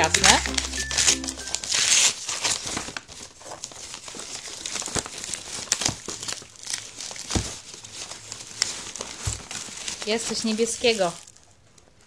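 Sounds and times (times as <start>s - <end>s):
paper and plastic crinkling: 0.0s - 12.0s.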